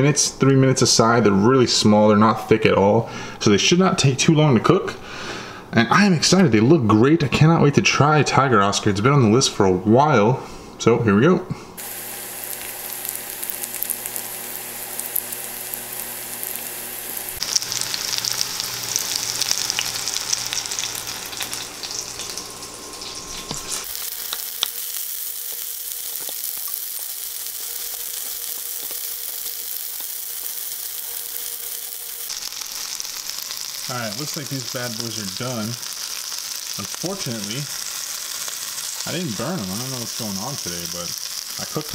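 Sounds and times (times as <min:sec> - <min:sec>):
fish frying in hot oil: 0:11.8 - 0:41.9.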